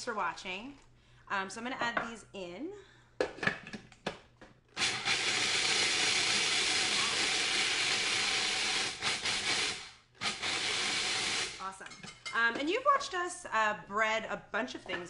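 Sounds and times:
food processor running: 0:04.8 - 0:11.6.

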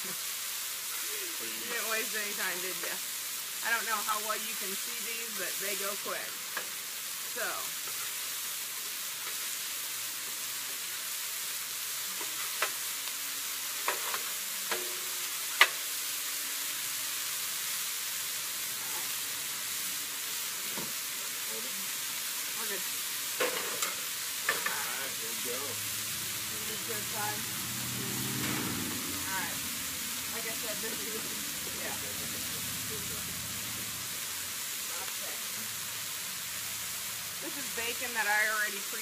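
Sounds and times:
burger patties sizzling on griddle: 0:00.0 - 0:39.0
metal spatula striking griddle: 0:13.8 - 0:15.8.

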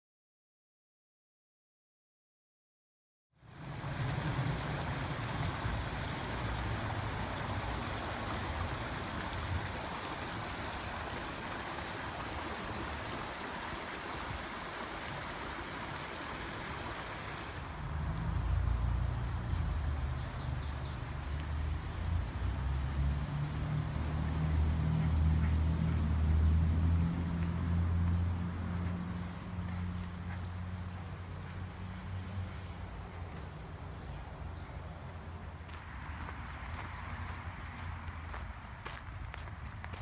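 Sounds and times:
water rushing over rocks: 0:03.5 - 0:18.4.

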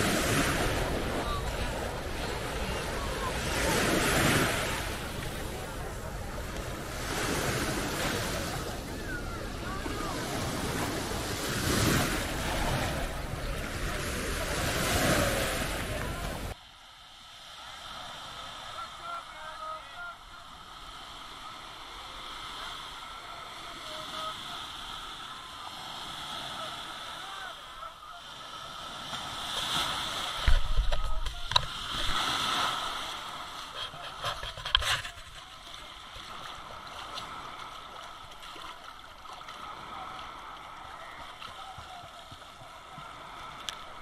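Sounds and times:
small waves sloshing: 0:00.0 - 0:16.6, 0:17.4 - 0:44.0
person wading splashing: 0:32.8 - 0:43.6.

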